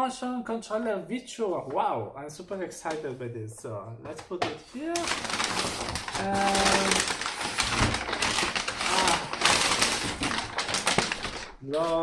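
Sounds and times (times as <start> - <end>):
packing paper crinkling and rustling: 4.8 - 12.0.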